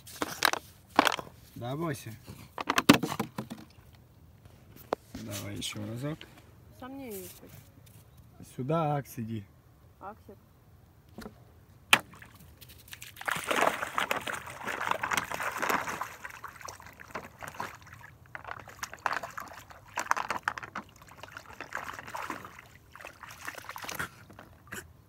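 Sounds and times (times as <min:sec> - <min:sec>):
dog splashing through water: 0:12.1 - 0:24.7.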